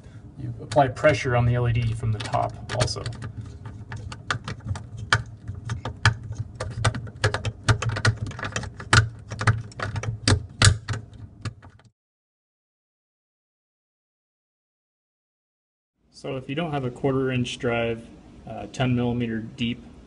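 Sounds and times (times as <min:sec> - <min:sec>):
steady low hum: 0:00.0 - 0:11.8.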